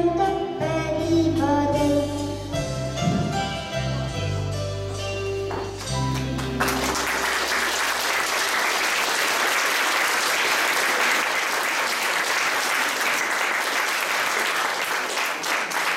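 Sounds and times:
audience applauding: 0:05.6 - 0:15.9.

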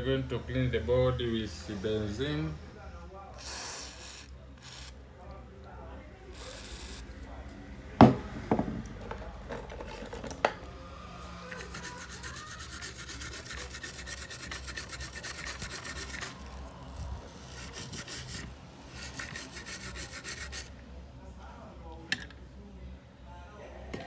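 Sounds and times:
brush scrubbing a circuit board: 0:11.5 - 0:20.7.

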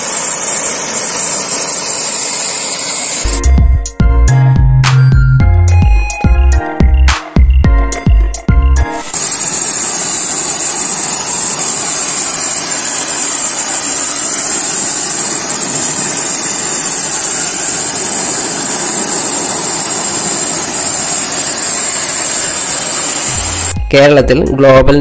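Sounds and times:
pressure washer jet hissing: 0:00.0 - 0:03.4, 0:08.9 - 0:23.8.

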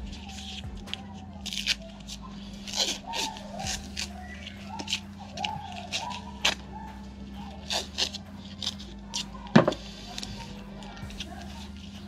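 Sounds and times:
masking tape ripping: 0:00.0 - 0:12.0.

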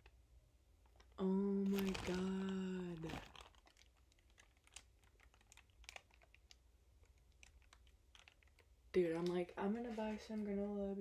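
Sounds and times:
plastic bag ticks: 0:01.7 - 0:09.4.

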